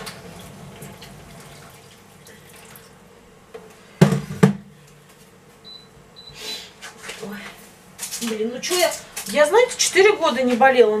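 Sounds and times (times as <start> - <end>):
water pouring from a kettle: 0.0 - 3.0.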